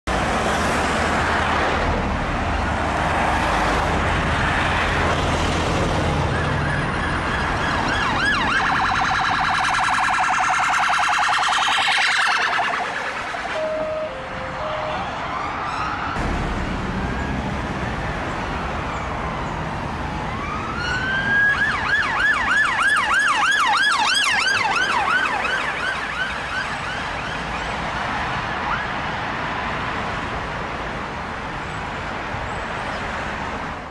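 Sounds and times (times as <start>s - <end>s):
road traffic rumble: 0.1s - 33.9s
police siren: 6.1s - 29.3s.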